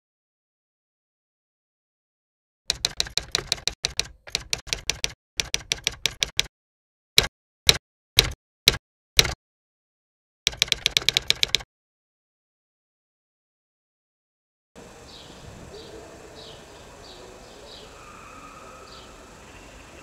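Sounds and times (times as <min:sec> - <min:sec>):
typewriter keys clacking: 0:02.7 - 0:06.5, 0:07.7 - 0:09.4, 0:10.5 - 0:11.6.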